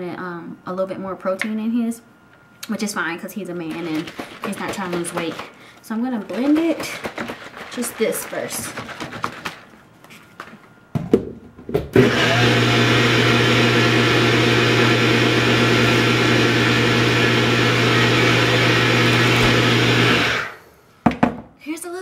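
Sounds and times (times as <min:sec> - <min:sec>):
blender motor humming: 0:12.0 - 0:20.7.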